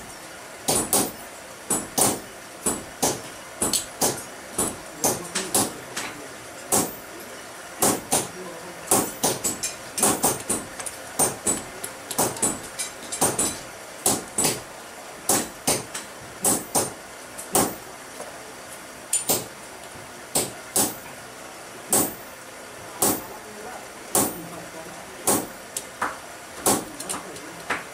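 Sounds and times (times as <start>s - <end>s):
hammer blows ringing on steel: 0.7s - 5.8s, 6.7s - 7.0s, 7.8s - 8.3s, 8.9s - 10.6s, 15.3s - 17.0s, 20.4s - 21.0s, 21.9s - 22.3s, 23.0s - 23.3s, 24.2s - 24.4s, 25.3s - 25.6s.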